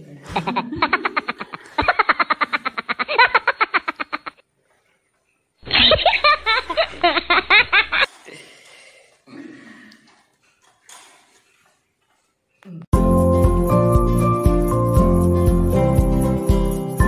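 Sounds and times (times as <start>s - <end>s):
high-pitched laughter: 0.3s - 4.4s.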